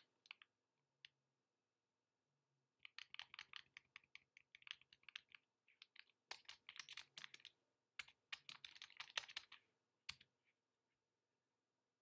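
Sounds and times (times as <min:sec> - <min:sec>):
keyboard typing: 0:02.8 - 0:10.3.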